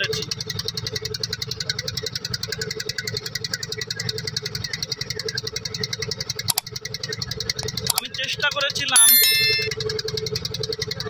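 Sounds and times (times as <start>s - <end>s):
sharp click: 9.0s - 9.7s.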